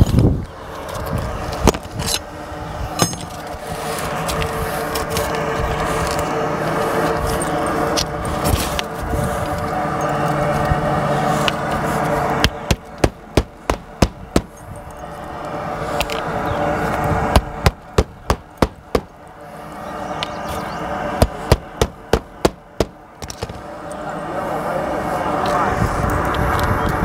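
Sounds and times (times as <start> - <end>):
hammer driving nails: 12.4 - 14.6, 17.3 - 19.1, 21.2 - 23.6.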